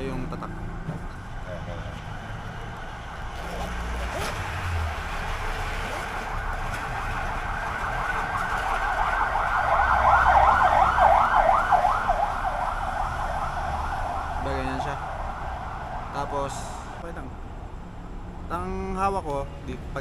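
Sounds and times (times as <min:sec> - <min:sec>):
siren yelping: 0:06.2 - 0:16.5.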